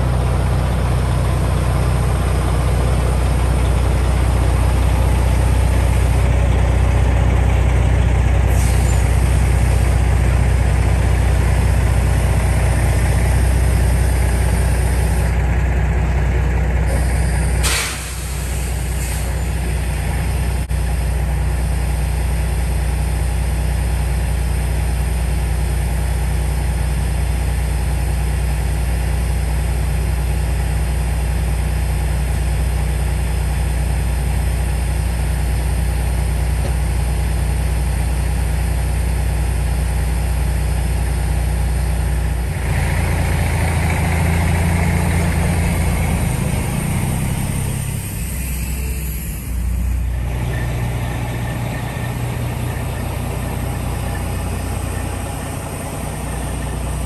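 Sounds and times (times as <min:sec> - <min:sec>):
diesel truck engine idling: 0:00.0 - 0:57.0
rushing hiss: 0:17.0 - 0:19.4.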